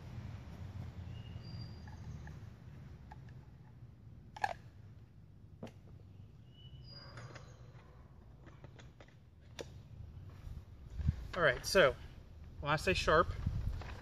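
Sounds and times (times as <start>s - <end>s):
low steady rumble: 0.0s - 6.4s.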